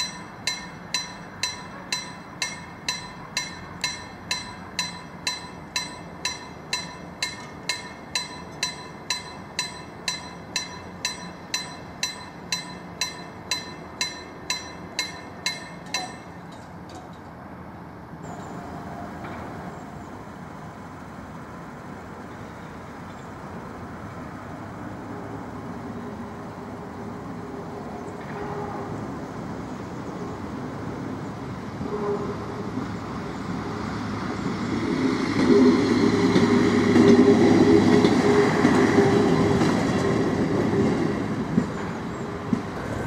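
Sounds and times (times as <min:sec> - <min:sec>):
level crossing warning bell: 0:00.0 - 0:16.7, 0:18.2 - 0:20.4
vehicle rumble: 0:42.1 - 0:43.0.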